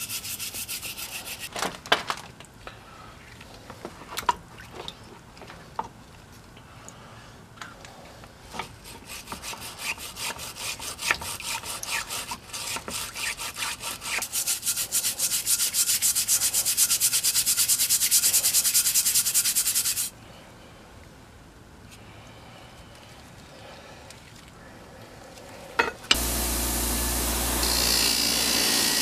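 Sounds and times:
stiff brush scrubbing metal in water: 0:08.7 - 0:20.1.

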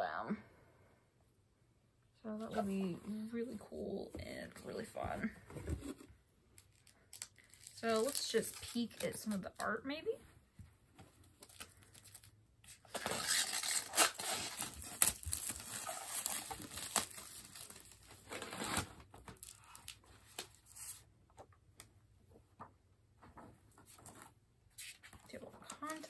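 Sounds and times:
plastic shrink wrap tearing: 0:06.6 - 0:09.6, 0:11.4 - 0:20.8
book rustling: 0:22.5 - 0:26.0.

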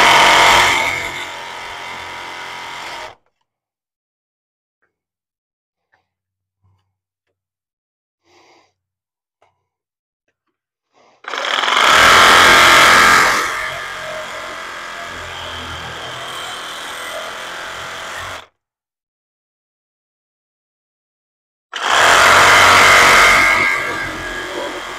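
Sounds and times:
handheld power tool running: 0:00.0 - 0:03.2, 0:11.2 - 0:18.4, 0:21.8 - 0:24.9.

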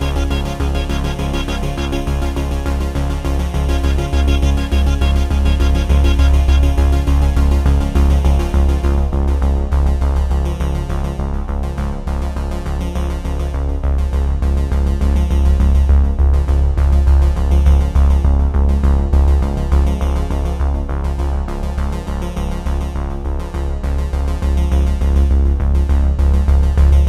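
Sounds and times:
steady beat: 0:00.0 - 0:08.6
electronic music: 0:00.0 - 0:11.2
heavy bass: 0:00.0 - 0:27.0
synthesizer: 0:00.0 - 0:27.0.

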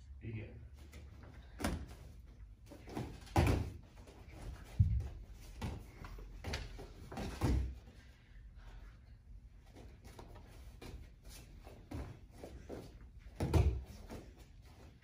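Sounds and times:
feet stamping on foam mats: 0:02.8 - 0:07.8.

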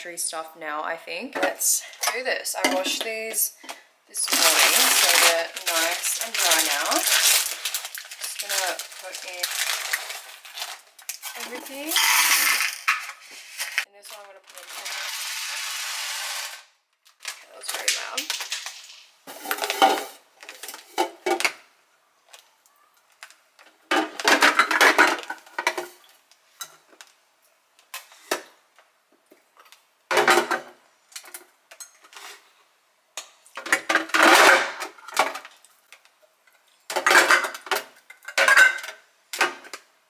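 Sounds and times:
tins clinking and clattering: 0:01.4 - 0:13.9, 0:17.6 - 0:21.6, 0:23.9 - 0:26.0, 0:36.9 - 0:39.8.

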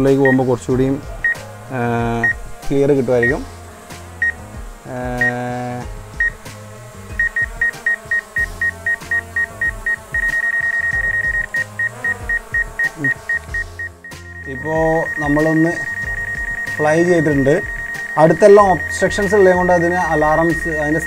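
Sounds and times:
drone propellers humming: 0:00.0 - 0:21.0
high obstacle-warning beeps: 0:07.2 - 0:21.0.

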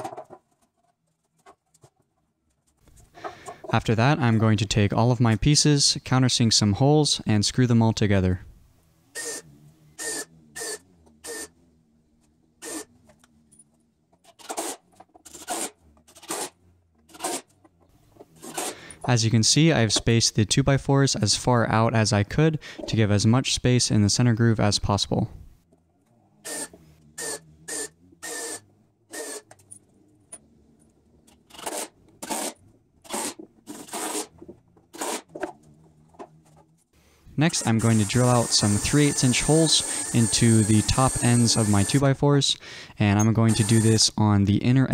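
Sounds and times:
cordless drill driving screws: 0:09.1 - 0:11.5, 0:12.6 - 0:13.1, 0:14.4 - 0:16.5, 0:17.1 - 0:17.5, 0:18.4 - 0:19.0, 0:26.4 - 0:29.7, 0:31.5 - 0:35.3, 0:37.5 - 0:42.1, 0:43.5 - 0:44.0.

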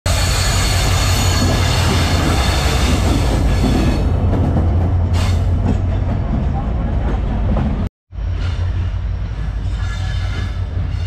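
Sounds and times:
locomotive rumbling: 0:00.1 - 0:11.0
passenger coaches rolling by: 0:00.1 - 0:11.0.

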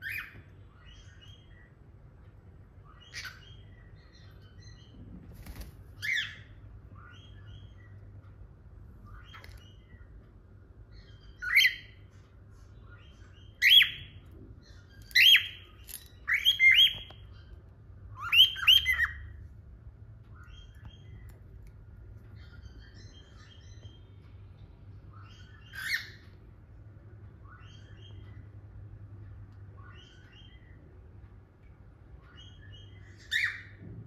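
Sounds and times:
cockatiels calling: 0:00.0 - 0:01.8, 0:02.8 - 0:08.0, 0:10.9 - 0:12.2, 0:12.8 - 0:19.4, 0:25.1 - 0:26.4, 0:32.2 - 0:33.9
soft bird chirps: 0:00.0 - 0:34.0.

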